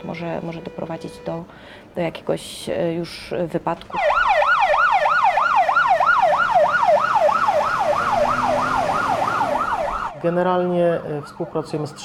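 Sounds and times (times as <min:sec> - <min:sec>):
fire engine siren yelping: 0:03.9 - 0:12.0.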